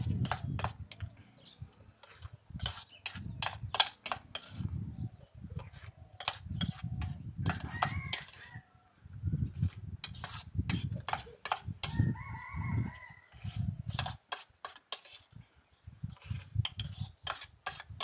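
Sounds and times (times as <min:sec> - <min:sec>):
rooster crowing: 0:07.6 - 0:09.0, 0:11.9 - 0:13.5.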